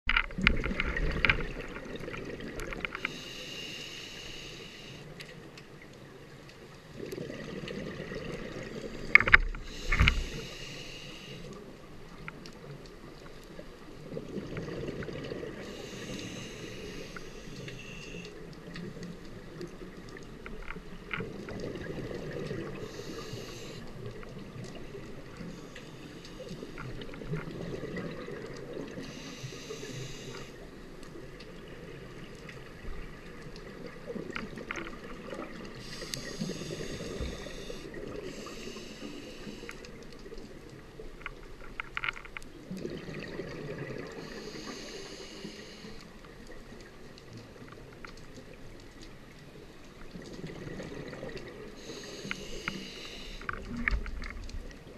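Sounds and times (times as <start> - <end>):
hissing breaths through regulator: 3.0 - 5.1, 9.6 - 11.6, 15.5 - 18.3, 22.7 - 24.2, 29.0 - 30.6, 35.7 - 40.0, 44.1 - 46.2, 51.8 - 53.8.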